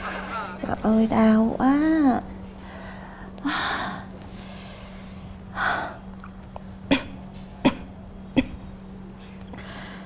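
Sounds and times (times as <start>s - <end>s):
steady low hum: 0.0s - 10.0s
woman's hissing breath: 2.8s - 5.7s.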